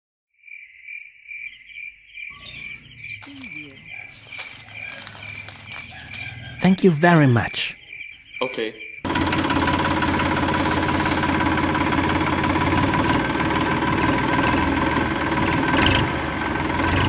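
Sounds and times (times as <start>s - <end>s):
tractor engine idling: 9.0s - 17.0s.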